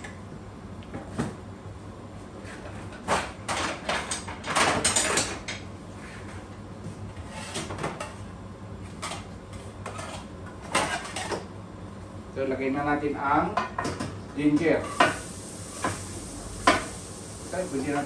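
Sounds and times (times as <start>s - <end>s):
low steady hum: 14.7s - 18.0s.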